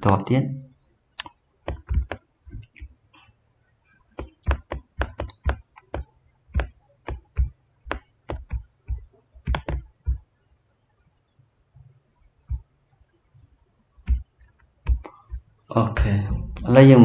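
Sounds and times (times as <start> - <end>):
computer mouse clicking: 1.2 - 2.9, 4.2 - 10.2, 14.0 - 15.4.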